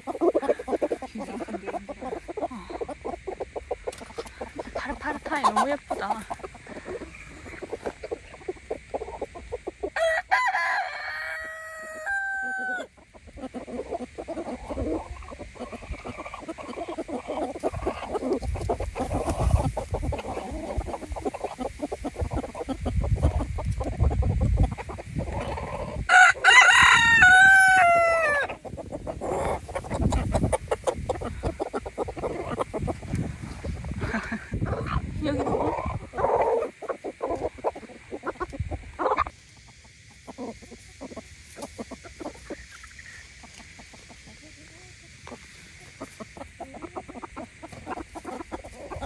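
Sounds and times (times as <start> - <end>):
chicken clucking: 0.0 - 49.0
rooster crowing: 10.0 - 12.9, 26.1 - 28.5.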